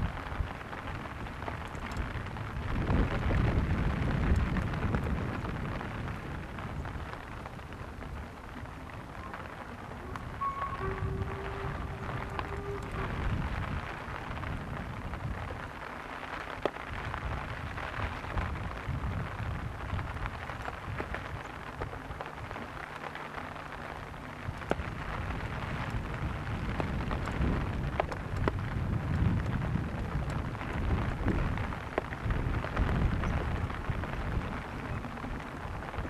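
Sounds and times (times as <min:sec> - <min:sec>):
rain: 0:00.0 - 0:36.0
steam locomotive exhaust rumble: 0:00.0 - 0:36.0
faint clicks: 0:00.7 - 0:03.2, 0:04.2 - 0:05.2, 0:19.9 - 0:36.0
locomotive whistle: 0:09.2 - 0:14.1.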